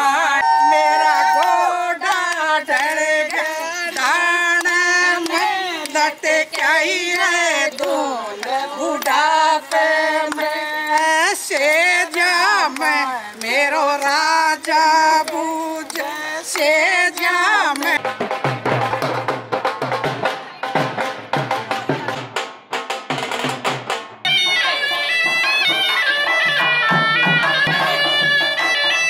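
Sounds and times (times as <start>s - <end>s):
woman singing: 0.0s - 18.0s.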